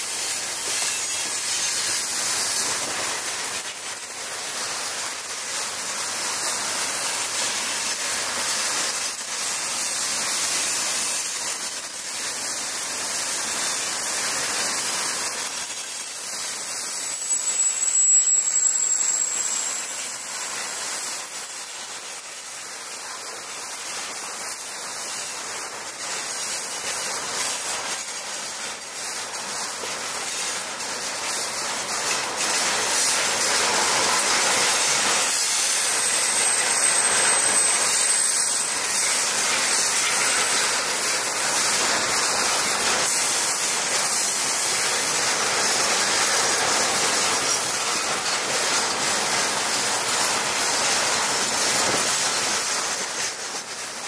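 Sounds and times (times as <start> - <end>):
freight train wheels rumbling: 30.5 - 52.7.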